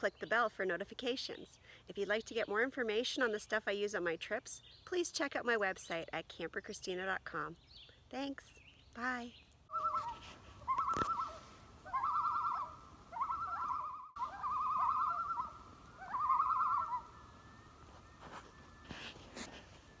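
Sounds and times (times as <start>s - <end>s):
loon quavering calls: 9.7s - 17.4s.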